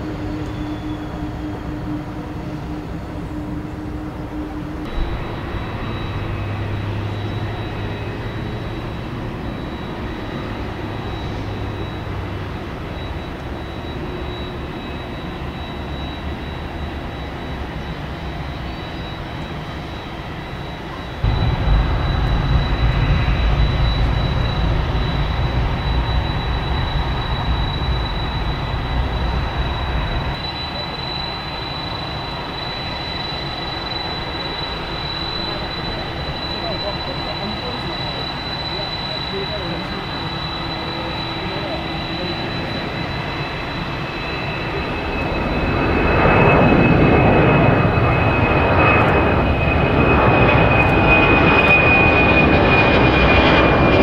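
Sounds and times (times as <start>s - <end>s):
jet engines idling: 0.0s - 54.0s
heavy low rumble: 4.8s - 9.8s, 21.2s - 30.6s.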